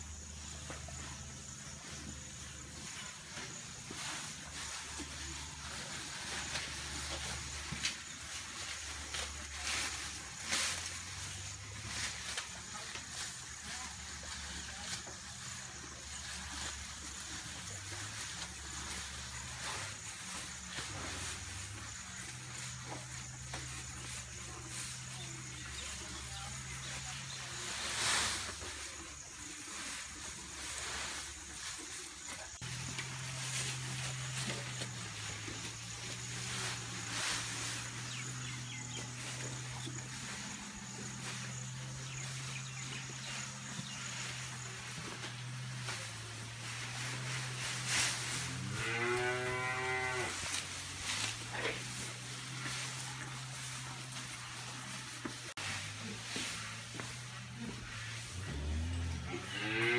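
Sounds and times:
grass rustling: 0:00.0 - 0:59.9
cow chewing: 0:28.7 - 0:59.9
cow mooing: 0:48.7 - 0:50.4.

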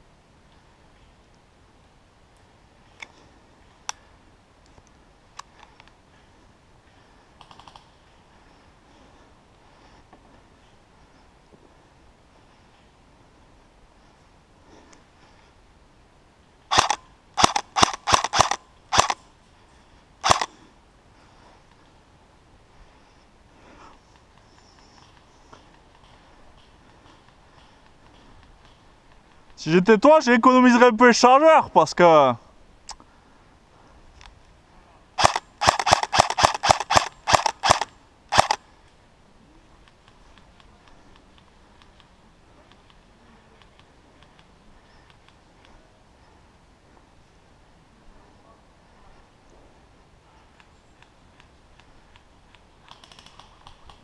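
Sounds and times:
airsoft rifle shots: 0:16.7 - 0:19.2, 0:20.2 - 0:20.5, 0:35.2 - 0:38.6.

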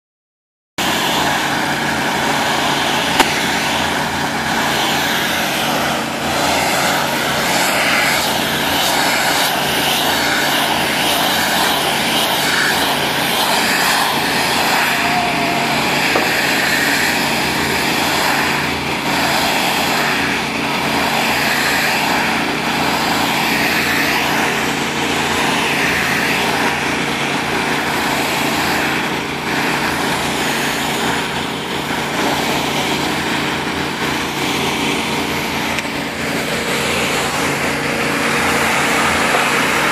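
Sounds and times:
high-pressure spray hissing: 0:00.8 - 0:34.8
gas engine running under load: 0:00.8 - 0:39.9
sharp knock: 0:03.2 - 0:03.4.

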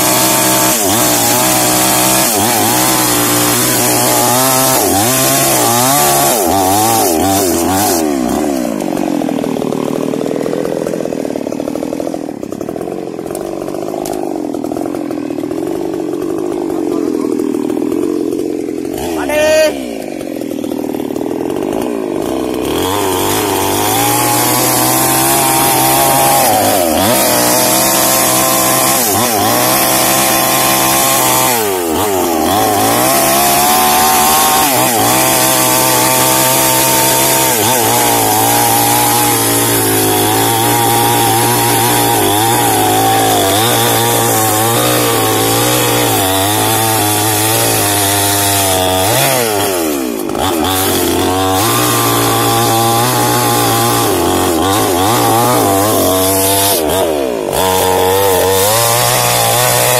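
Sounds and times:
chainsaw cutting wood: 0:00.0 - 0:59.9.

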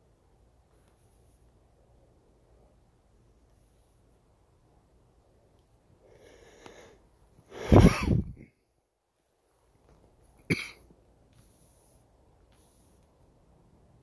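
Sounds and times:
breathy intake: 0:06.1 - 0:08.2
person coughing: 0:07.6 - 0:08.5, 0:10.4 - 0:10.9.

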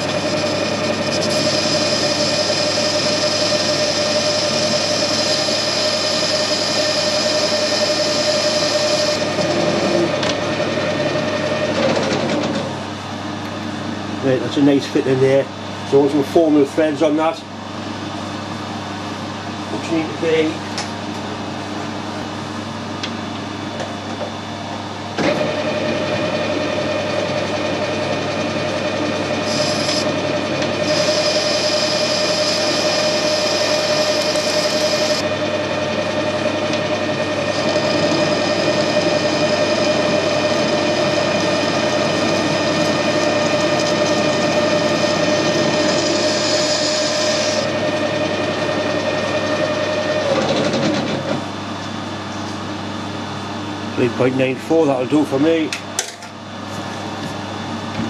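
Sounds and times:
metal lathe cutting: 0:00.0 - 0:13.4, 0:25.2 - 0:51.7.

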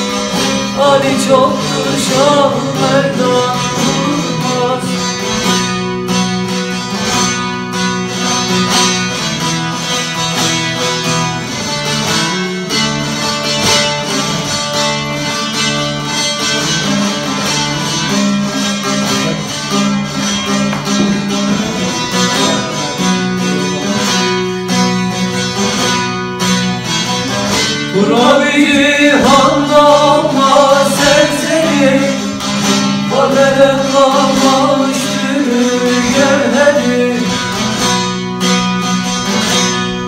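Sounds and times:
long-necked lute plucked melody: 0:00.0 - 0:40.0.

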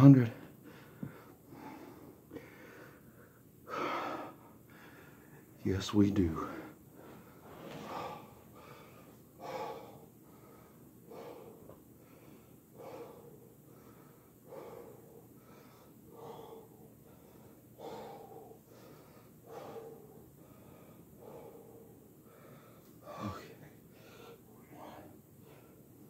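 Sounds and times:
man breathing hard: 0:00.4 - 0:05.6, 0:06.4 - 0:26.0.

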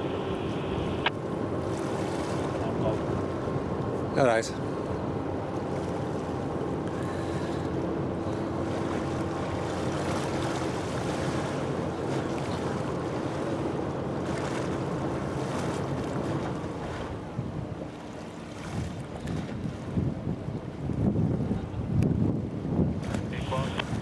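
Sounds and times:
river water washing: 0:00.0 - 0:21.7, 0:22.7 - 0:24.0
ship engine drone: 0:00.0 - 0:24.0
wind buffeting microphone: 0:00.0 - 0:24.0.

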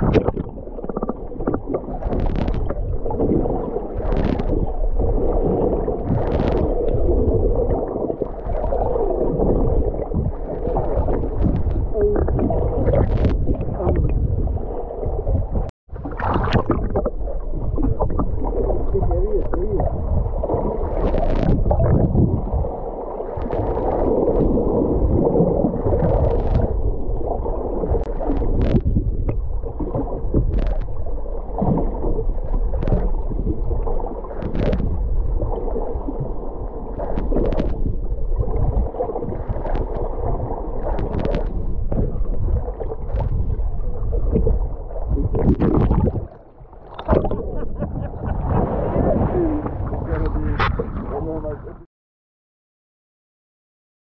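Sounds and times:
bubbles clicking and popping: 0:00.0 - 0:03.4, 0:16.0 - 0:20.1, 0:40.8 - 0:48.2
underwater water rumble and gurgle: 0:00.0 - 0:51.9.

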